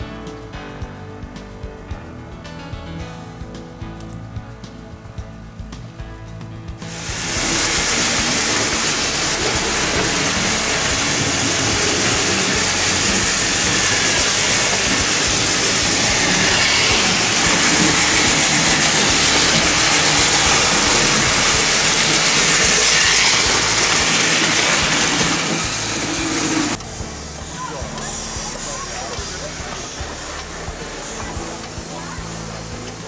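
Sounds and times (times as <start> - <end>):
model train rolling on track: 6.8 - 33.0.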